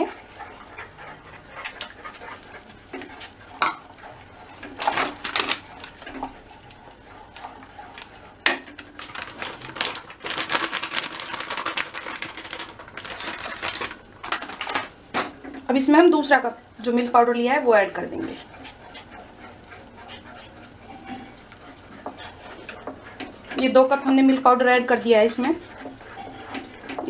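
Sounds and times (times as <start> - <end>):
wooden spatula scraping in wok: 0.0 - 9.8, 16.2 - 27.0.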